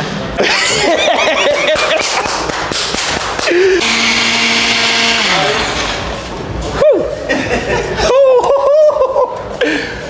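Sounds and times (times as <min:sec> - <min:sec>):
electric blender motor: 0:03.8 - 0:06.3.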